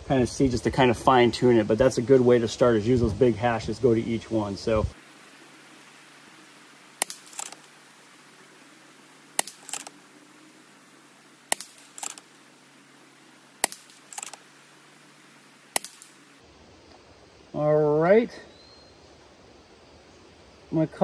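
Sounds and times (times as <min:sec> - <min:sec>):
air rifle cracks: 0:07.0 - 0:07.8, 0:09.4 - 0:10.0, 0:11.5 - 0:12.3, 0:13.6 - 0:14.5, 0:15.7 - 0:16.3.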